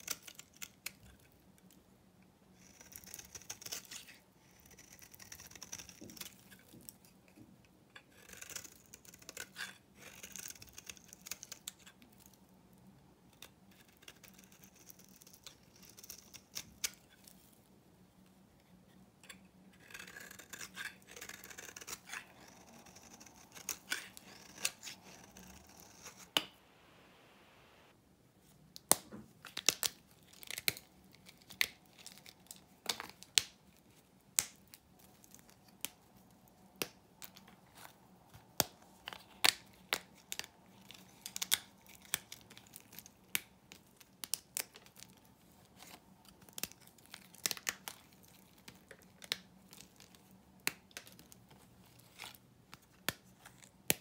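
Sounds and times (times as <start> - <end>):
knife scraping soap: 2.5 - 12.3, 13.4 - 17.3, 19.2 - 26.4.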